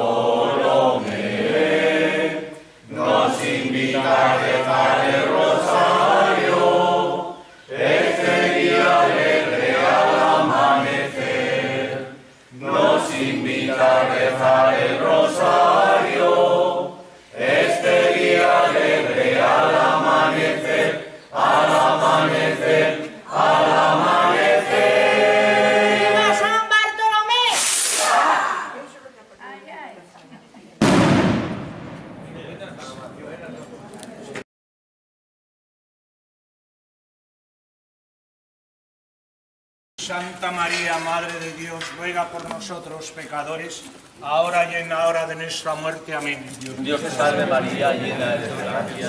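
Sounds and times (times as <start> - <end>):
group singing in unison: 0.0 - 26.5, 46.8 - 49.0.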